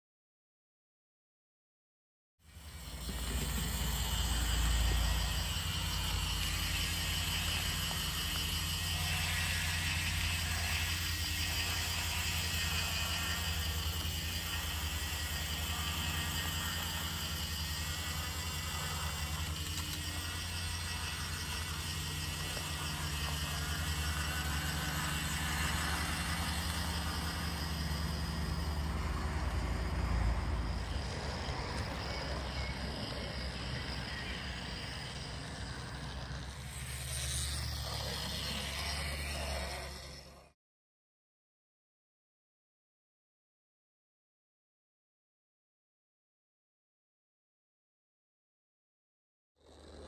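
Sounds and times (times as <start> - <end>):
model train rumbling on track: 2.5 - 40.5.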